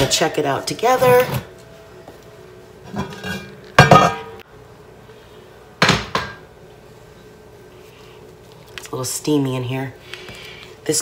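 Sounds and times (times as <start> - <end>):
heavy pot lid clanking: 2.9 - 4.4.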